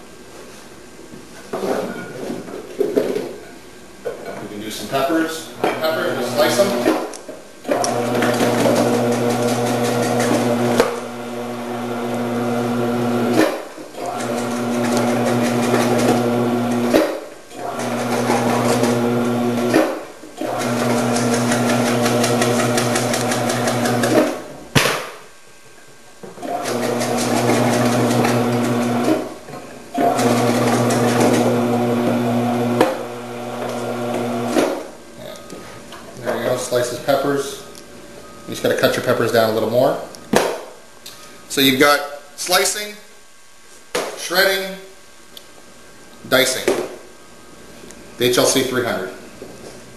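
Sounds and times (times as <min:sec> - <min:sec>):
cutting machine motor hum: 0:07.8 - 0:17.0, 0:17.6 - 0:24.4, 0:26.4 - 0:29.2, 0:30.0 - 0:34.7.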